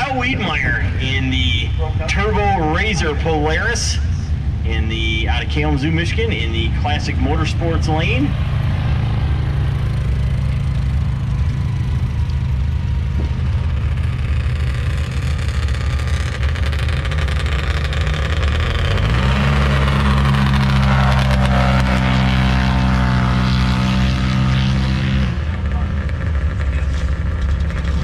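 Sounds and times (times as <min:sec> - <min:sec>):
engines idling and revving: 0:00.0 - 0:28.0.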